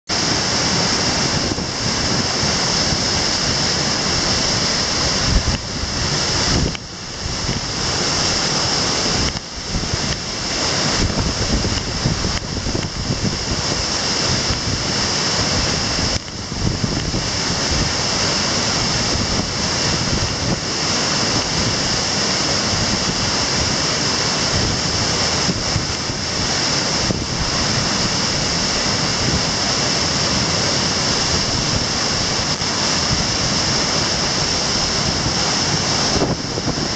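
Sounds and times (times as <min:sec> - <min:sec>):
waterfall rushing: 0:00.1 - 0:36.9.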